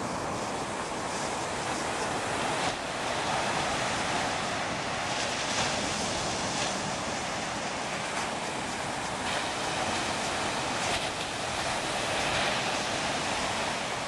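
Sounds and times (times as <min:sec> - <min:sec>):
ocean surf breaking: 0:00.0 - 0:14.0
wind rumbling on microphone: 0:00.0 - 0:14.0.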